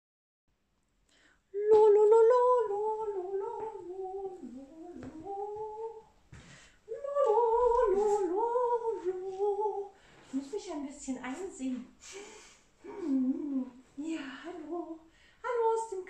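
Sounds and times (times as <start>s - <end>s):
woman humming a melody: 1.6s - 6.0s, 12.8s - 15.0s.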